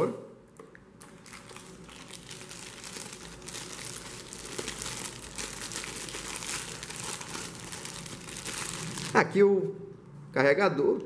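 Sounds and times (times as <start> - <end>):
plastic bag crinkling: 1.0 - 9.2.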